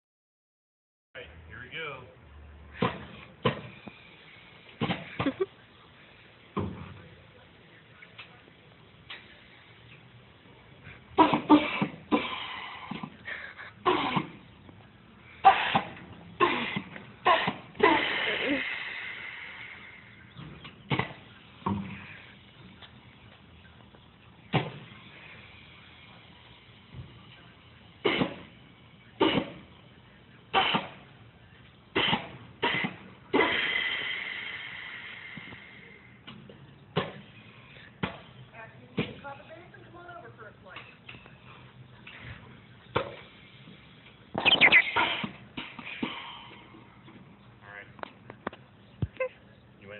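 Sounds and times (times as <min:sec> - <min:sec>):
steady whistle: 0:44.4 - 0:45.0.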